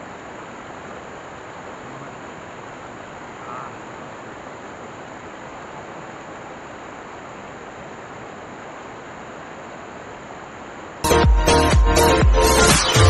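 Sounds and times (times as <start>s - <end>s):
stream water rushing over rocks: 0.0s - 13.0s.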